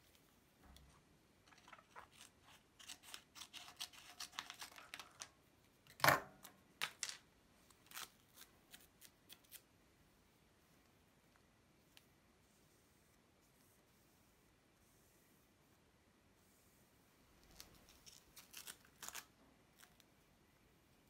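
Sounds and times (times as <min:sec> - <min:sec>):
paper rustling and crinkling: 0:01.4 - 0:05.3, 0:17.4 - 0:20.0
scissors snipping paper: 0:01.5 - 0:05.3, 0:17.5 - 0:19.3.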